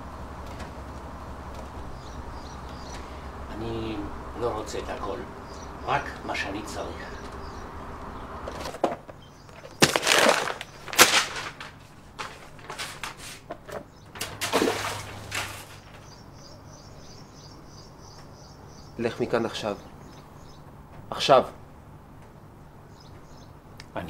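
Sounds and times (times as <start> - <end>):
rustling handling noises: 8.4 - 16.2.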